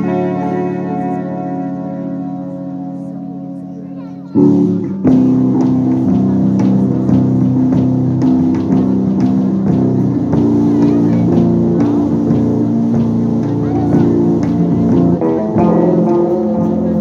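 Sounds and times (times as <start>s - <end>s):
electric guitars sustained notes: 0.0s - 17.0s
drum kit hits: 4.4s - 17.0s.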